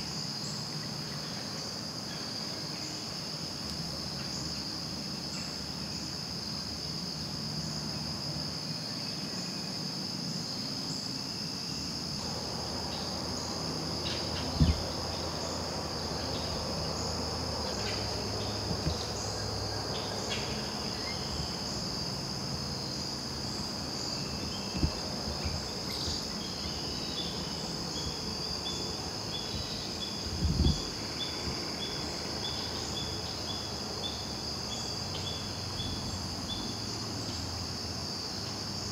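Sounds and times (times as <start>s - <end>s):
crickets and insects trilling: 0.0s - 38.9s
short low thumps: 14.5s - 15.0s.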